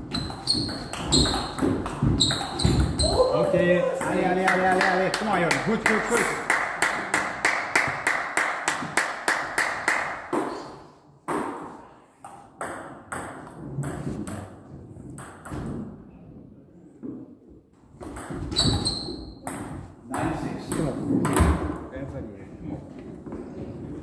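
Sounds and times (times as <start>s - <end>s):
table tennis ball hits: 0.1s - 3.2s, 11.3s - 14.5s, 18.0s - 21.8s.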